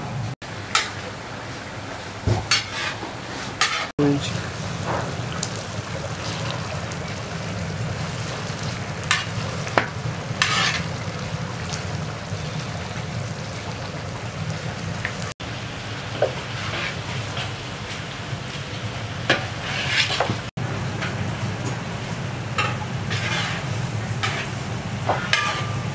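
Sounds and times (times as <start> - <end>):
rice bubbling and sizzling: 0.0 - 25.9
metal skimmer scraping: 2.5 - 11.8, 19.3 - 21.3, 22.5 - 25.9.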